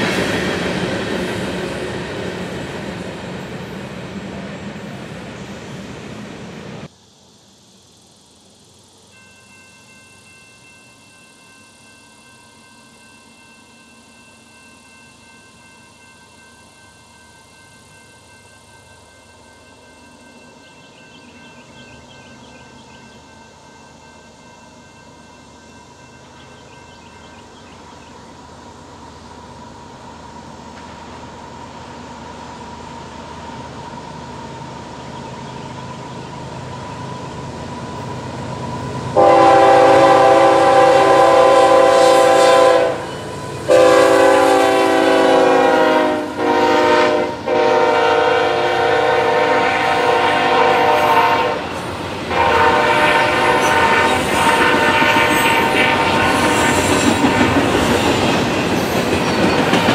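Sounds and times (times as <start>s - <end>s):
freight train rumble: 0.0s - 59.9s
locomotive horn blasts: 39.2s - 51.7s, 52.3s - 56.5s.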